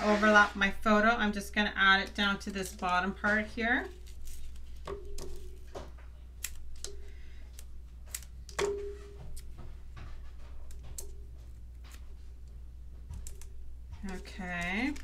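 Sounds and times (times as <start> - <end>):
paper rustling: 2.0 - 6.8.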